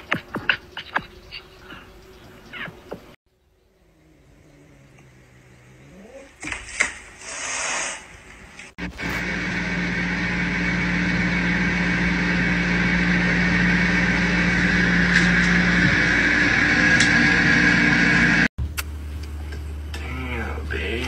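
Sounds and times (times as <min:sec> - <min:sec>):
motor hum with high whine: 0:08.8 - 0:21.0.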